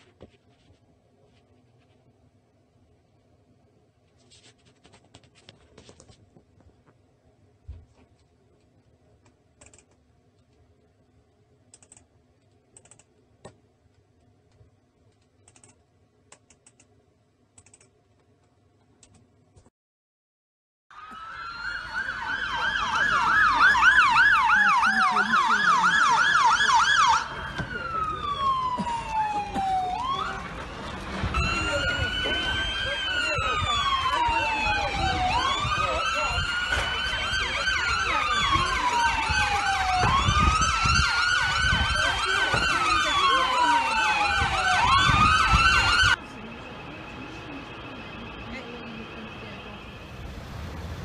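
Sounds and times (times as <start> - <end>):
emergency siren yelping: 20.9 - 51.0
street noise rumble: 21.0 - 51.0.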